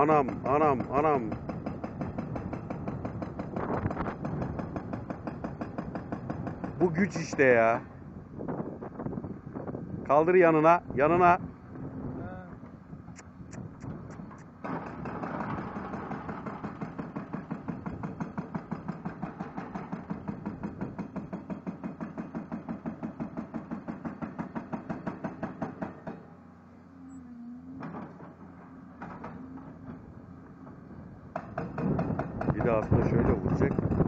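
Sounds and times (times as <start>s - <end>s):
hydraulic rock breaker hammering: 0.0s - 7.4s, 14.6s - 26.4s, 27.8s - 34.0s
excavator engine running: 0.0s - 8.2s, 11.5s - 34.0s.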